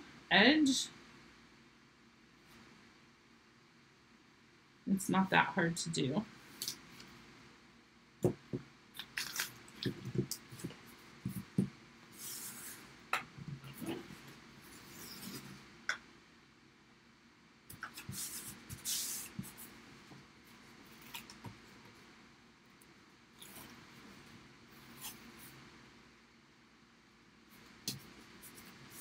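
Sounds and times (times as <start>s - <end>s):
tape being unrolled: 9.0s - 10.4s.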